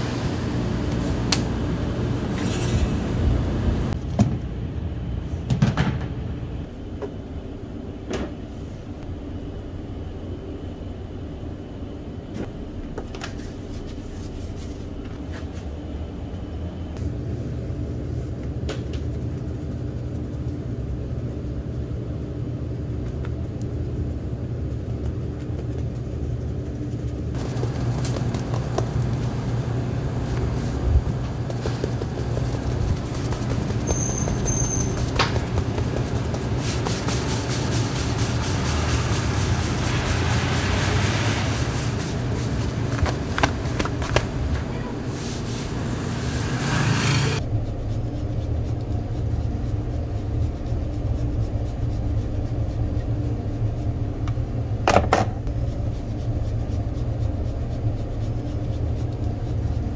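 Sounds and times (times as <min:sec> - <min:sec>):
low machine hum: 0:00.0 - 0:59.9.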